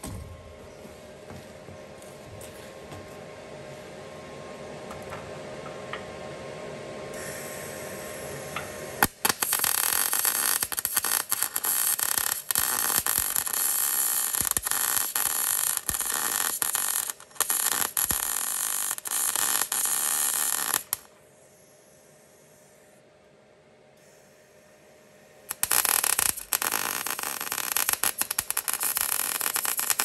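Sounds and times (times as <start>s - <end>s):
welder arc crackling and sizzling: 7.2s - 21.1s, 25.5s - 30.0s.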